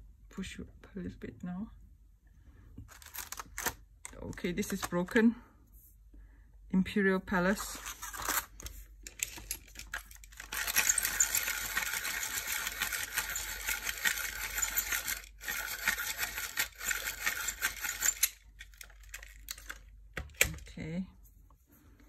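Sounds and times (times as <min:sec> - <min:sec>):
dry crackly pencil handling: 0:02.8 - 0:05.2, 0:07.6 - 0:12.0, 0:17.4 - 0:20.7.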